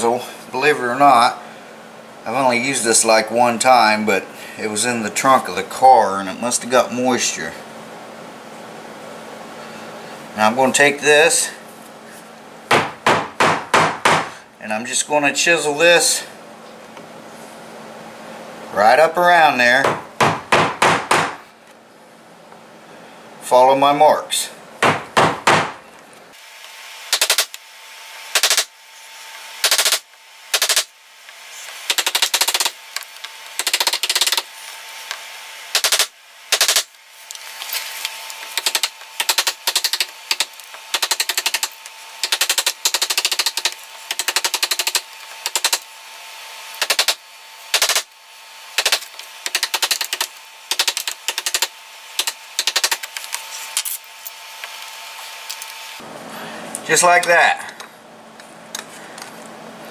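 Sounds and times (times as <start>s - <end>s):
hammer striking a wood chisel: 12.7s - 14.4s, 19.8s - 21.4s, 24.8s - 25.8s.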